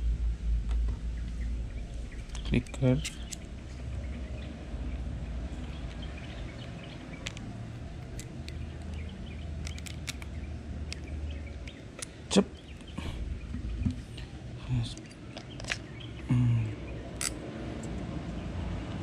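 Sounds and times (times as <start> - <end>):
steady low rumble: 0.0 - 19.0
small reel parts clicking: 2.2 - 3.5, 5.5 - 13.0.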